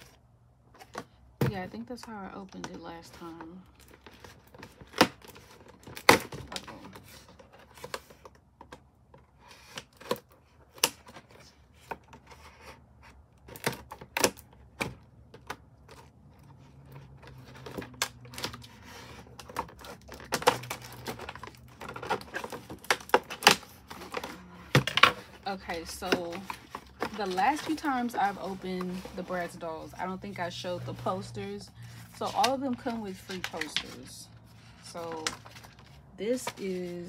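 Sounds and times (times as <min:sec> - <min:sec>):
box being handled and opened: 0:00.0 - 0:37.0.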